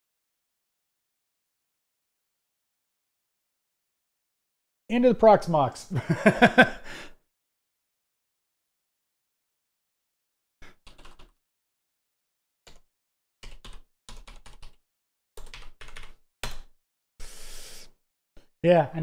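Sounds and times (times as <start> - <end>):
computer keyboard typing: 10.6 - 11.4, 13.4 - 14.8, 15.4 - 16.7.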